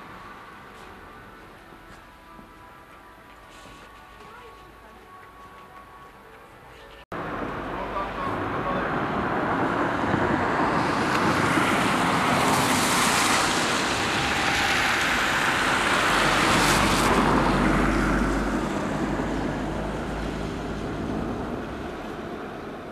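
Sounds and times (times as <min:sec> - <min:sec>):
tyre hiss on wet road: 0:10.7 - 0:21.4.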